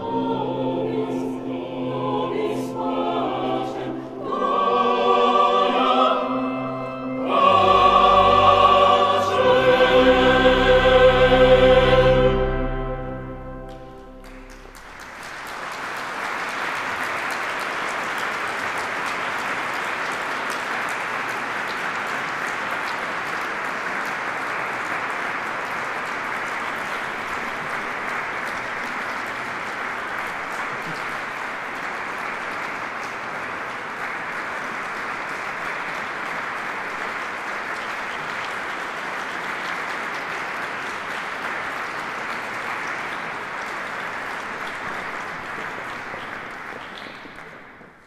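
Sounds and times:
audience applauding: 0:12.3 - 0:48.0.

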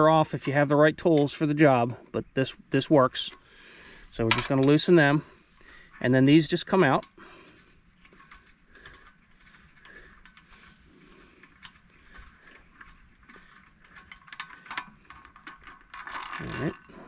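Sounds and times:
metallic clicks of bolts turning: 0:04.1 - 0:05.3, 0:11.4 - 0:17.0.

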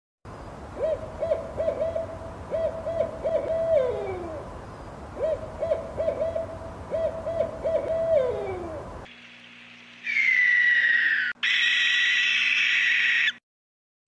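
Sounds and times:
owl hooting: 0:00.8 - 0:04.5, 0:05.2 - 0:08.9, 0:10.0 - 0:13.4.

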